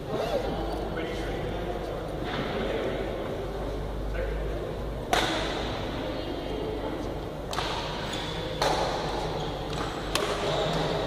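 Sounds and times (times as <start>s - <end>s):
murmur of voices: 0.0s - 11.0s
rackets striking shuttlecock: 7.5s - 10.9s.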